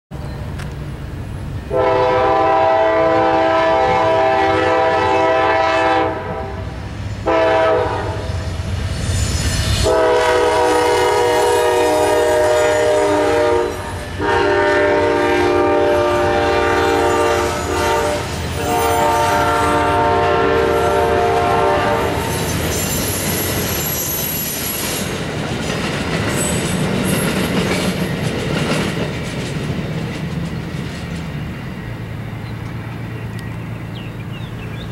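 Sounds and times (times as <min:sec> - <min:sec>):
diesel locomotive horn blasts: 0:01.7 - 0:08.5, 0:09.8 - 0:22.5.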